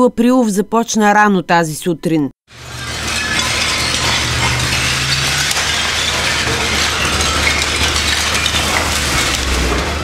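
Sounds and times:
bricks and rubble clattering: 0:02.5 - 0:10.0
excavator bucket tearing brick wall: 0:02.5 - 0:10.0.

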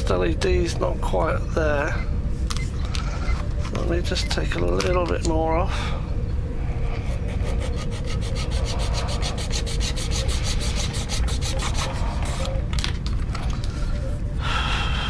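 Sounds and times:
rapid hand filing: 0:07.1 - 0:12.5.

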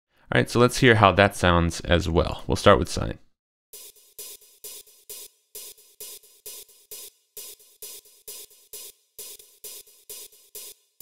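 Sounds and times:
percussion loop panning: 0:03.8 - 0:11.0.

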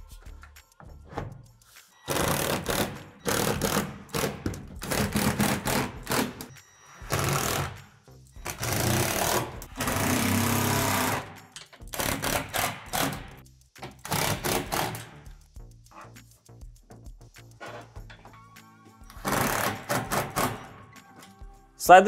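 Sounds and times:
cordless drill driving screws: 0:19.2 - 0:20.0.

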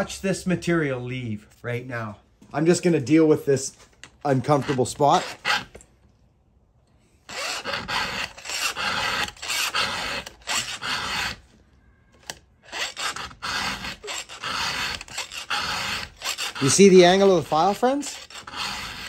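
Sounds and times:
file rasping on saw chain: 0:04.3 - 0:05.7, 0:07.3 - 0:11.4, 0:12.7 - 0:19.0.

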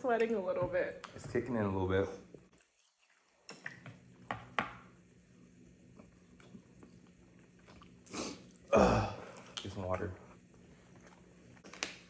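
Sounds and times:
people slurping and chewing noodles: 0:02.5 - 0:04.2, 0:06.0 - 0:09.6.

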